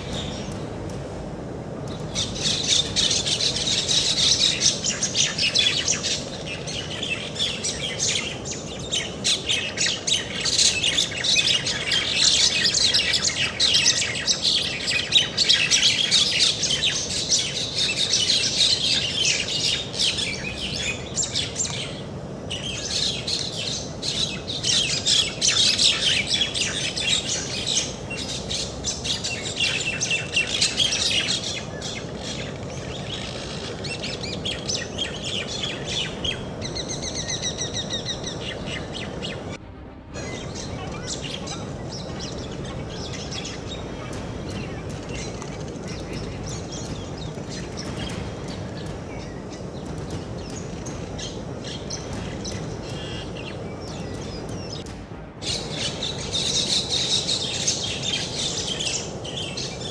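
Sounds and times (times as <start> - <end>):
small birds chirping: 0.0 - 39.6, 40.2 - 59.9
low background hiss: 0.0 - 59.9.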